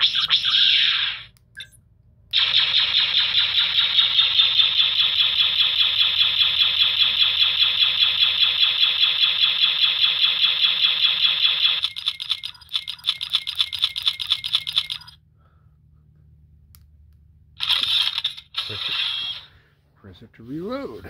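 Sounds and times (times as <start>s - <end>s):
blaster sound effects firing: 2.3s - 11.8s.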